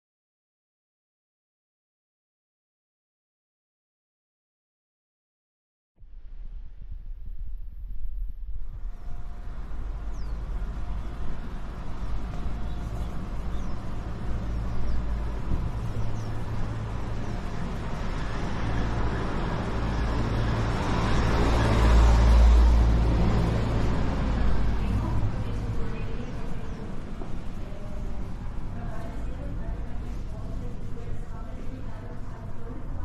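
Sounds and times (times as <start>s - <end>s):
street traffic rumble: 8.6s - 33.0s
vehicle passing: 8.7s - 33.0s.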